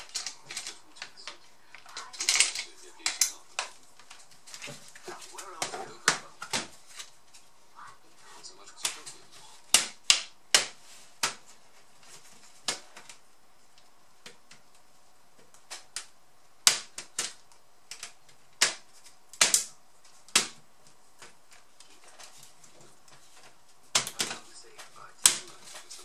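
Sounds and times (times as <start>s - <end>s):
plastic clips clicking: 0.0s - 4.2s, 15.4s - 20.6s.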